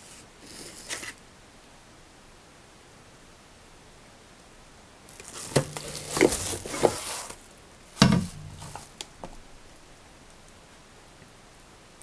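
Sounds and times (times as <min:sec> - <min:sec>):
plastic wrapping crinkling: 0:05.1 - 0:09.4
carafe knocking against machine: 0:08.0 - 0:08.8.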